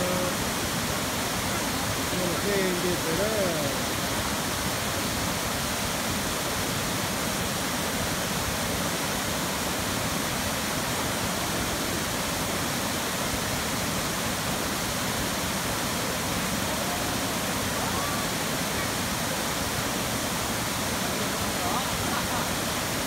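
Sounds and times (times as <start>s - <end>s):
waterfall rushing and splashing: 0.0s - 23.0s.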